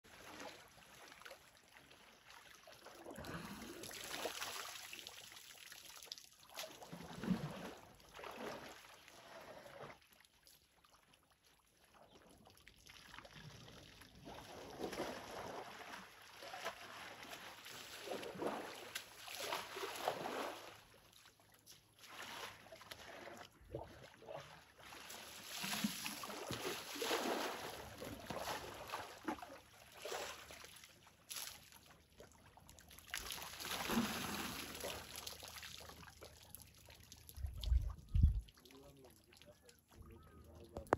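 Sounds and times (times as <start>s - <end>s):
water splashing and trickling: 0.1s - 40.9s.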